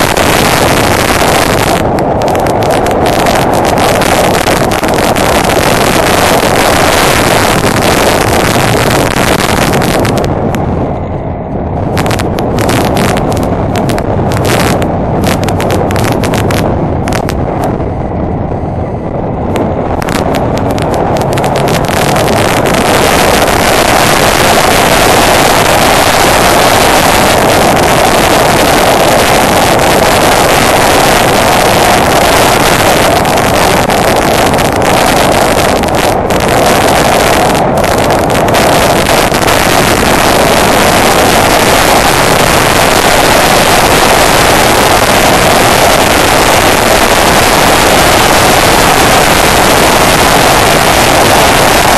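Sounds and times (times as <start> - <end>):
motorcycle engine running: 0.0 - 51.9
wind rushing over microphone: 0.0 - 51.9.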